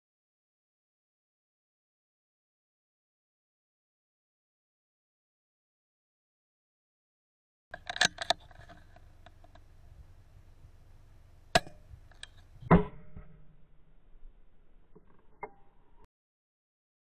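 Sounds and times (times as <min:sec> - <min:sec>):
rifle bolt clicks: 0:07.7 - 0:09.6.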